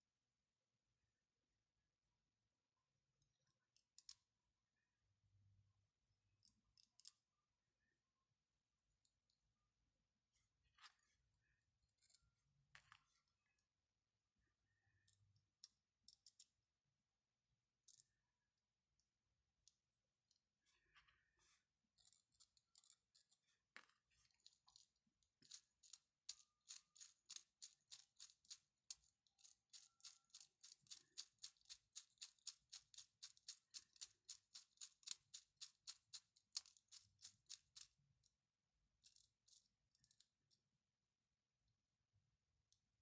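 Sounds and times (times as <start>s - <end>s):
plastic ratchet clicking: 25.4s - 37.9s.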